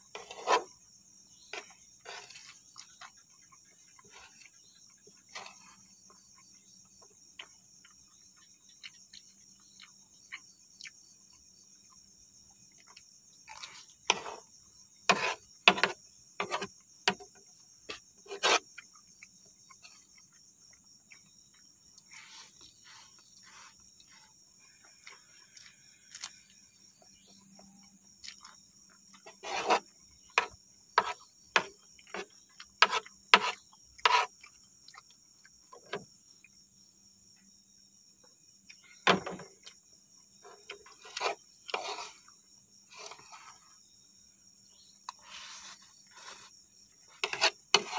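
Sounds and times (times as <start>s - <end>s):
crickets chirring: 0.0s - 47.9s
spoon working in tray: 29.3s - 29.8s, 40.7s - 42.3s, 47.1s - 47.9s.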